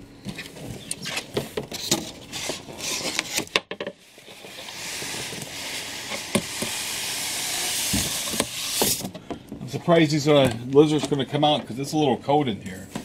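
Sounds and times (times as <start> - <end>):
box rubbing on foam: 4.1 - 9.0.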